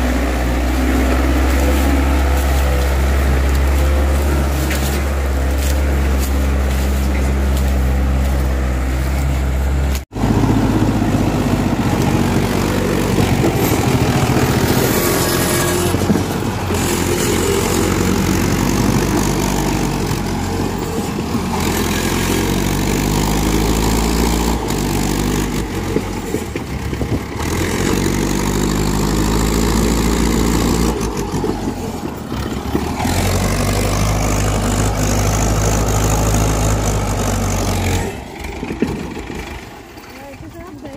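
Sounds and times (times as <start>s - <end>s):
tractor diesel engine under load: 0.0s - 40.9s.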